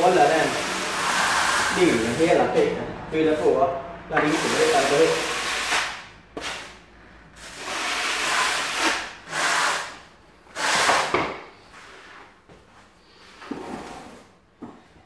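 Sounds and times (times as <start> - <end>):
trowel scraping tile adhesive: 0.1 - 2.4, 7.4 - 12.1.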